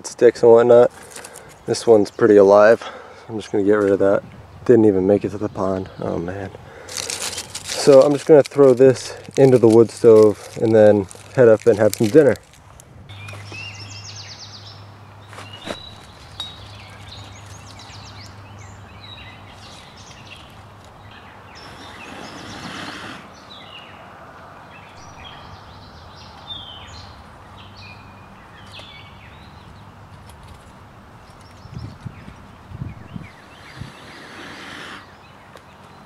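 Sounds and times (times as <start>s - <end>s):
birds chirping and singing: 13.1s - 30.2s, 31.2s - 36.0s.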